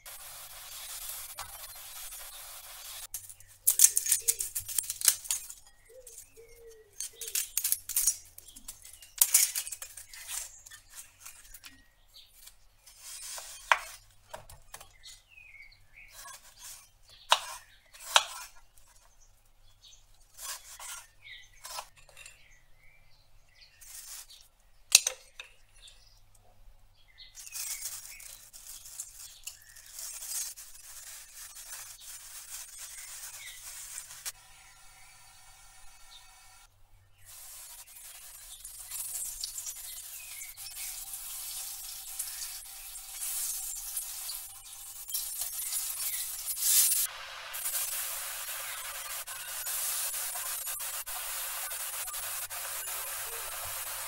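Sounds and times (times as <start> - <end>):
onion skin crackling and tearing: 0.0 - 15.1, 27.4 - 34.4, 37.2 - 54.0
knife cutting on wooden board: 16.2 - 18.6.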